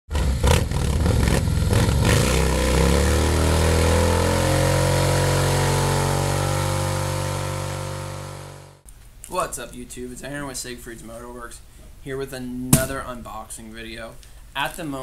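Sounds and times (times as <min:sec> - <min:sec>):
motorcycle engine revving: 0:00.1 - 0:08.8.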